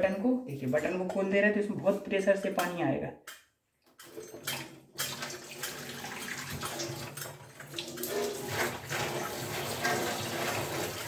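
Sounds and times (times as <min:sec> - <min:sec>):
water rushing from pipe: 0:05.0 - 0:11.0.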